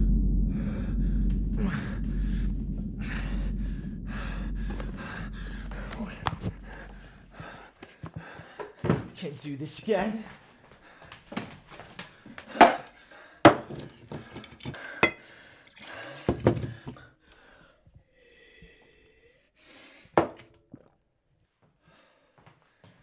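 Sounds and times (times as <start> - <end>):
loud knock: 0.0 - 7.6.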